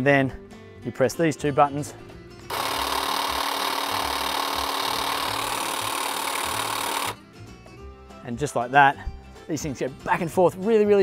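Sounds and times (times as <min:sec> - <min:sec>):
hedge trimmer whirring: 0:02.5 - 0:07.2.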